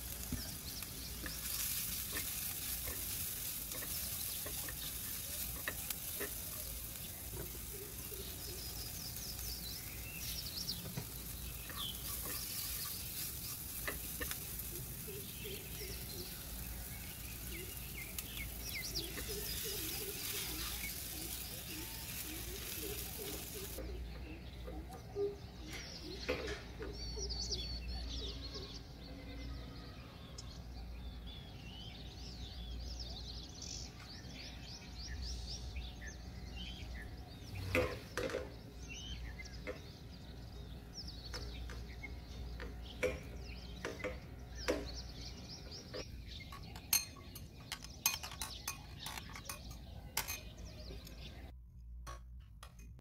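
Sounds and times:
birds chirping: 0.0 - 51.6
spatula scraping frying pan: 0.2 - 23.8
utensils knocking and clinking: 46.4 - 50.6
spoon clinking in china bowl: 46.6 - 50.5.

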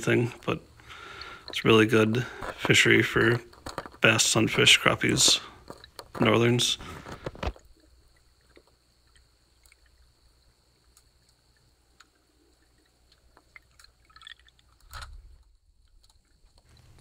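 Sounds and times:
faint low hum: 0.0 - 17.0
small ticks: 5.4 - 17.0.

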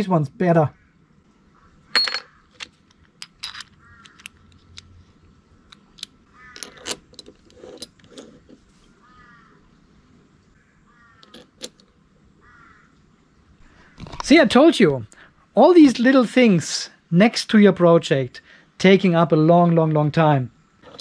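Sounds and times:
small metal parts clinking on wood: 1.9 - 4.9, 5.7 - 8.6, 11.2 - 11.8, 20.8 - 21.0.

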